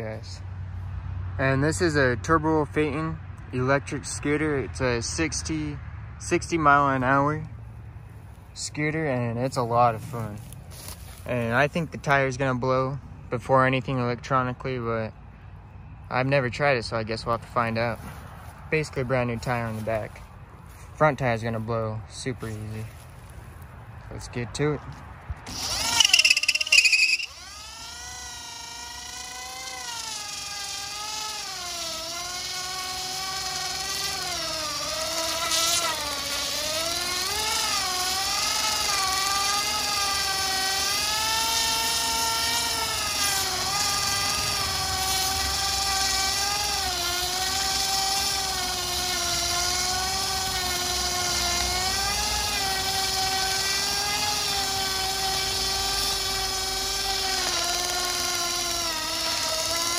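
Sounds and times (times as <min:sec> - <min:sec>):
electric motor whining: 0:25.3 - 0:59.9.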